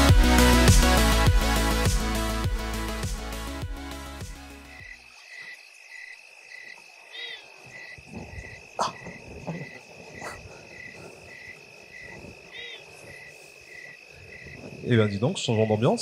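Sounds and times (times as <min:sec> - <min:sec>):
crickets trilling: 0:04.6 - 0:16.0
frog calling: 0:04.6 - 0:16.0.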